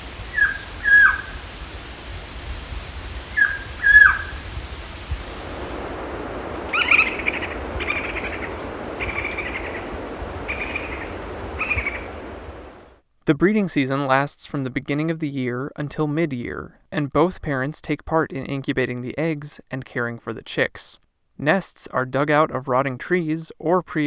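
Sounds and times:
harsh chattering bird calls: 0.3s - 1.3s, 3.4s - 4.4s, 6.7s - 12.1s
bird whistles sliding down: 3.3s - 4.4s, 6.7s - 9.8s.

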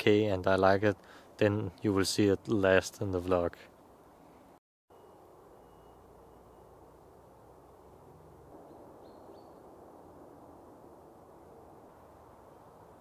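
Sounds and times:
faint low background hiss: 0.0s - 4.6s
faint bird chirp: 4.9s - 7.0s, 8.6s - 9.7s.

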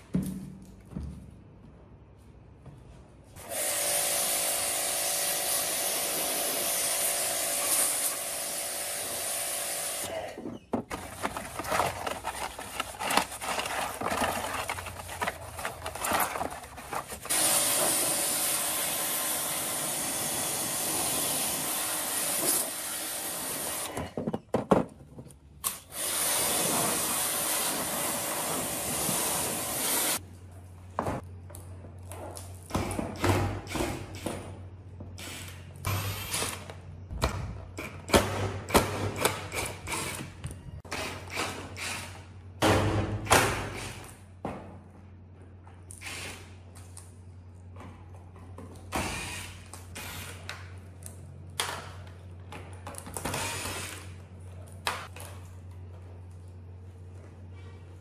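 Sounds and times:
pressure washer spraying metal: 17.3s - 23.8s.

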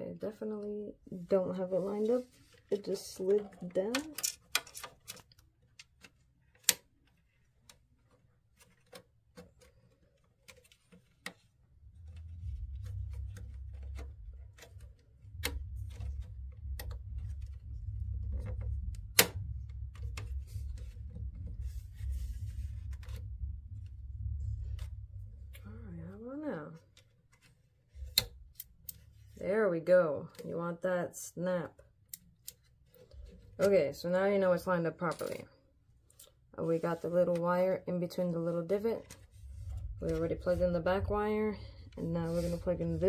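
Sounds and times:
plastic parts clicking: 3.2s - 17.6s
steady low rumble: 11.7s - 27.0s, 36.5s - 43.0s.

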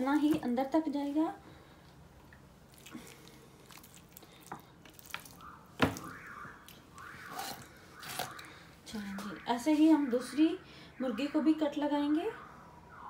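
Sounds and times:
wet squishing of raw chicken: 2.3s - 8.7s.

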